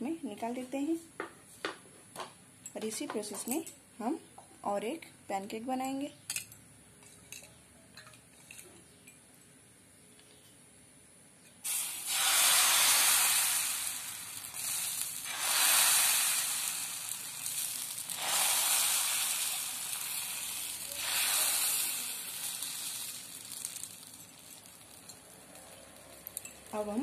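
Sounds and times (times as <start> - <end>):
batter sizzling in a pan: 11.6 - 27.0.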